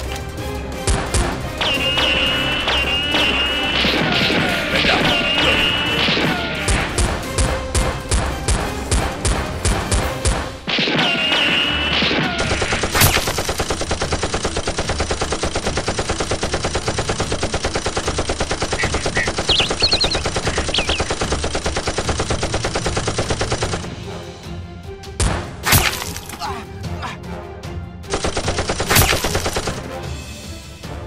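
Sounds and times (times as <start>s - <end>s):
gunshots: 0.8s - 23.9s, 25.2s - 26.4s, 28.1s - 29.9s
rapid automatic gunfire: 11.1s - 23.9s, 28.1s - 29.9s.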